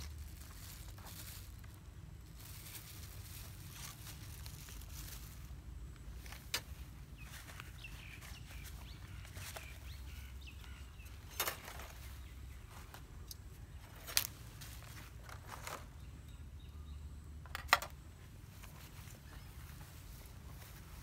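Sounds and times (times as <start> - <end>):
bird chirps: 7.1 - 14.1.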